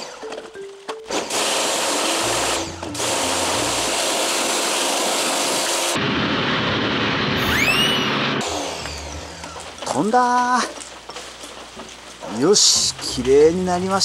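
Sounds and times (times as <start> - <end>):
pressure washer spraying water: 1.0 - 6.0.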